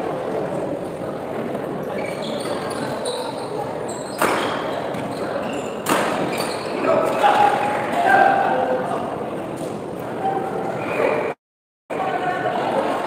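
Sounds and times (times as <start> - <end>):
crowd voices: 0.0 - 13.0
shoes squeaking on court floor: 1.7 - 7.2.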